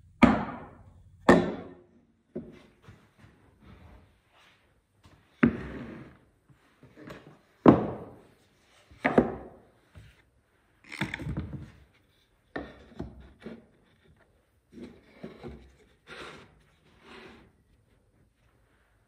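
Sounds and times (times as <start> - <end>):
board scraping on board: 5.4 - 6.3, 14.8 - 17.5.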